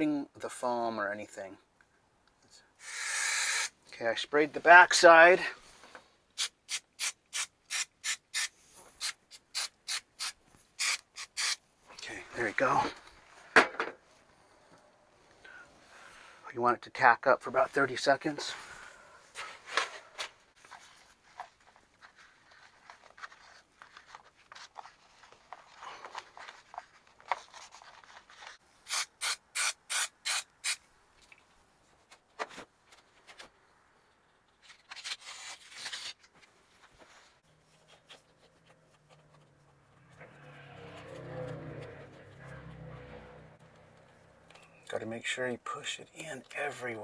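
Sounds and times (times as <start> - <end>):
aerosol spray can hissing: 2.8 - 3.7, 6.4 - 11.6, 28.9 - 30.8
paper rustling: 19.3 - 28.6, 32.0 - 39.9.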